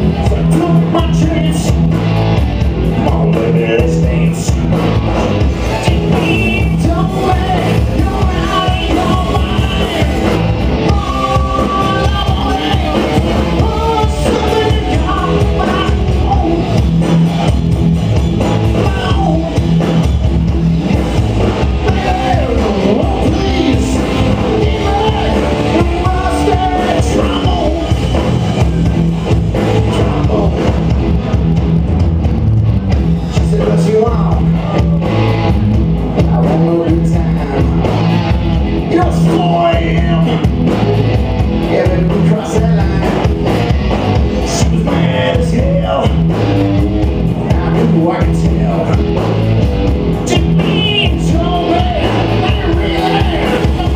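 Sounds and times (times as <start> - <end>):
bass guitar: 0.0 - 53.9
drum kit: 0.0 - 53.9
electric guitars: 0.0 - 53.9
person singing: 5.6 - 16.8, 18.7 - 19.6, 21.6 - 29.0, 38.8 - 41.0, 50.3 - 53.9.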